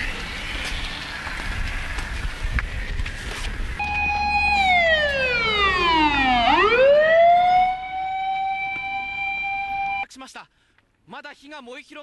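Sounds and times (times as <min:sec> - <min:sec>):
fire engine siren: 0:03.8 - 0:10.0.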